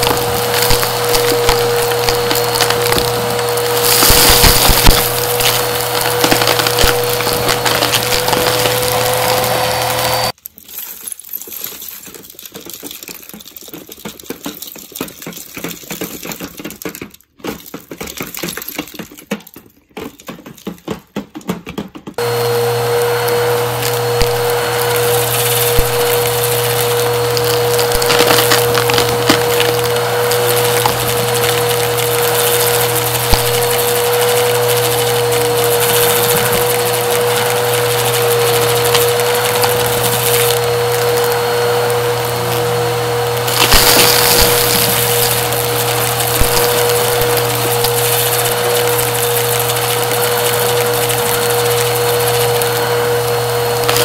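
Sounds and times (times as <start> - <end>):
scattered clicks and rattles: 0.0 - 9.5, 10.3 - 22.3, 23.0 - 42.7
vacuum cleaner motor whine: 0.0 - 10.4, 22.2 - 54.0
debris crackling in vacuum: 0.0 - 13.5, 22.2 - 54.0.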